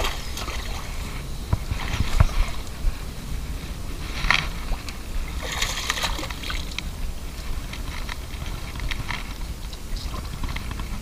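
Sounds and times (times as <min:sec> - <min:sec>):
fish splashing and thrashing: 0:00.0 - 0:02.8, 0:04.1 - 0:10.7.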